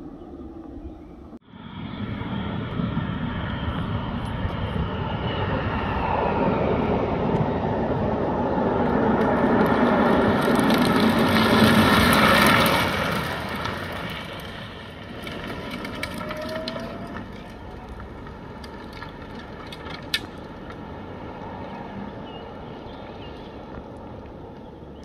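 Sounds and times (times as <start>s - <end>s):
car passing at speed: 1.4s - 18.6s.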